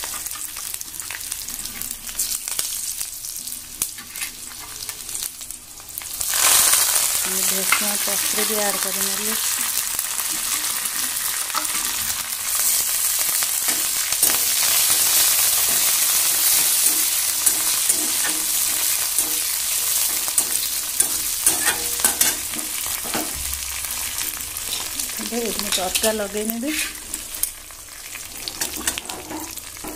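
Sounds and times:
spices sizzling in hot oil: 0:00.0 - 0:29.9
metal spatula scraping pan: 0:10.4 - 0:23.3, 0:25.6 - 0:27.5, 0:28.3 - 0:29.9.

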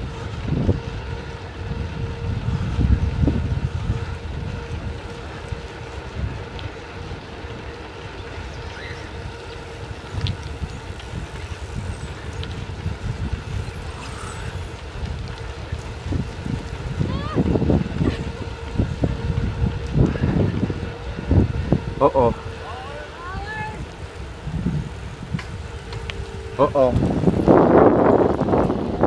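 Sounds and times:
rolling road noise: 0:00.0 - 0:29.0
wind buffeting microphone: 0:00.0 - 0:29.0.

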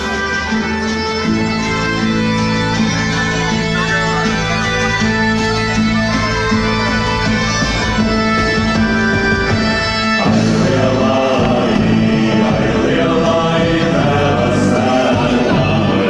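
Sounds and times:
folk dance music: 0:00.0 - 0:16.0
group singing: 0:10.2 - 0:16.0.

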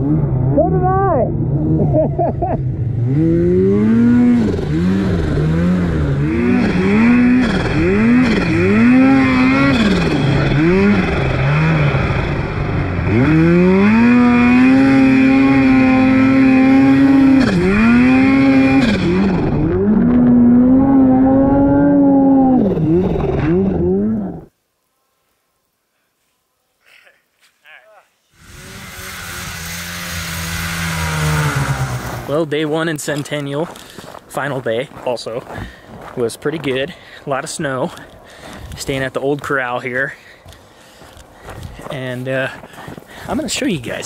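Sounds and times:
snowmobile engine revving: 0:00.0 - 0:24.5, 0:27.7 - 0:33.4.

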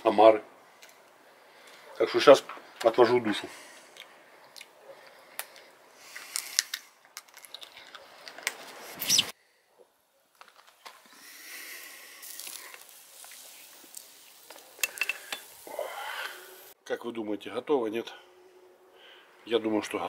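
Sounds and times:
crayfish shells cracking: 0:05.3 - 0:08.6
faint steady hiss: 0:07.8 - 0:18.0.

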